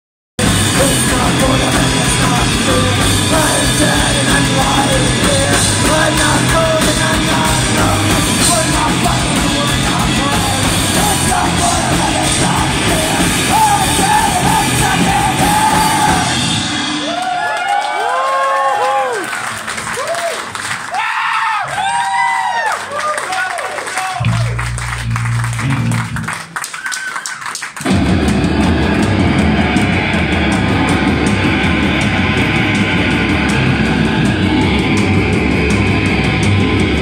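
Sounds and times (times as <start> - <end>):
bass guitar: 0.4 - 17.5, 24.2 - 26.7, 27.8 - 37.0
distorted electric guitars: 0.4 - 17.5, 24.2 - 26.6, 27.8 - 37.0
drum kit: 0.4 - 19.2, 24.2 - 26.6, 27.7 - 37.0.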